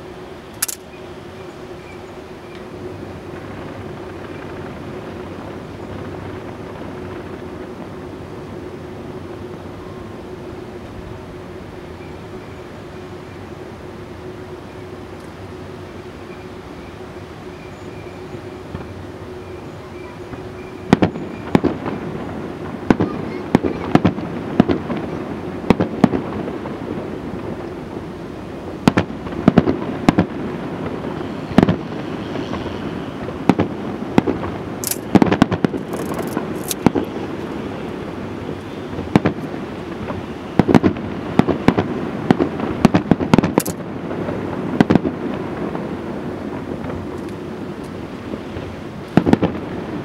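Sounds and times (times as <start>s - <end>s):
high crackling firework bursts: 20.2s - 50.0s
firework shells bursting with bangs: 28.8s - 45.9s, 46.5s - 50.0s.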